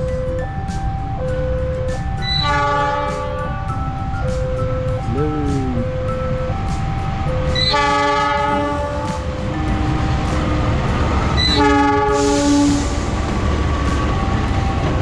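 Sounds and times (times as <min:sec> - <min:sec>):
passing train rumbling: 0:00.0 - 0:15.0
locomotive air horn blasts: 0:02.4 - 0:03.3, 0:07.6 - 0:09.2, 0:11.5 - 0:12.9.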